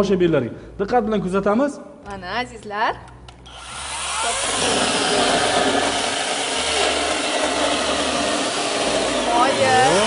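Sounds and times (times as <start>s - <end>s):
mini chainsaw cutting log: 3.5s - 10.0s.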